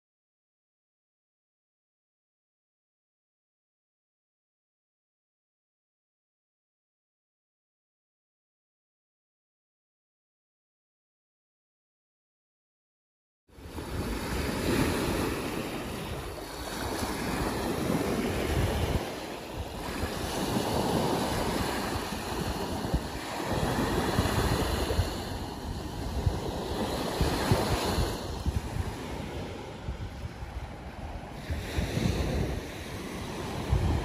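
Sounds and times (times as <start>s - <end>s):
small waves washing on beach: 13.5s - 34.0s
wind buffeting microphone: 13.6s - 34.0s.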